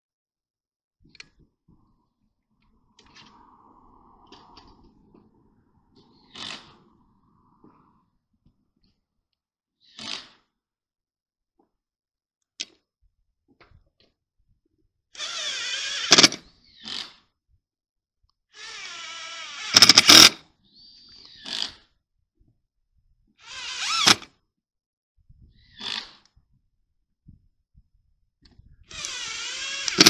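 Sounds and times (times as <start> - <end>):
cordless drill driving screws: 15.2 - 17.1, 18.6 - 20.4, 23.4 - 24.3, 28.9 - 30.0.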